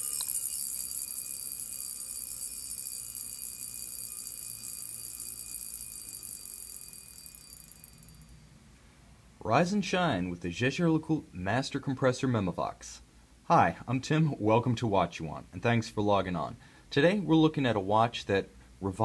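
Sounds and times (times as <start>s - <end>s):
wristwatch alarm buzzing: 0.0s - 8.5s.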